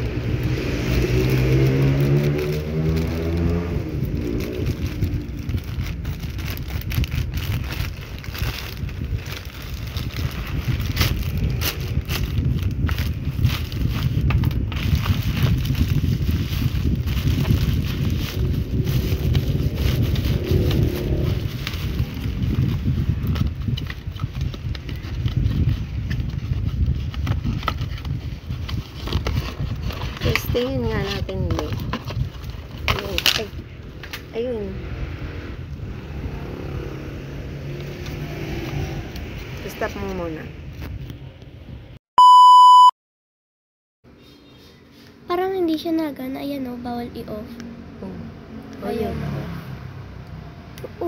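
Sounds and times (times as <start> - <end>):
cardboard and plastic rustling: 0.0 - 34.3
steady low rumble: 0.0 - 36.3
plastic mailer crinkling: 0.2 - 33.6.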